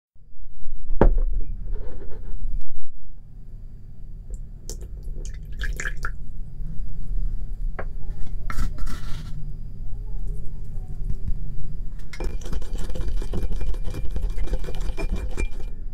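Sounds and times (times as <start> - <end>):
steady low hum: 0.2 - 15.9
liquid pouring and splashing in glass: 4.7 - 6.1.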